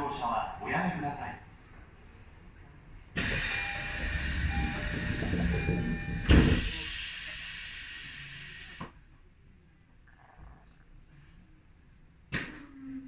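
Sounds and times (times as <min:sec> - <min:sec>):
train hiss over low rumble: 0:02.4 - 0:09.2.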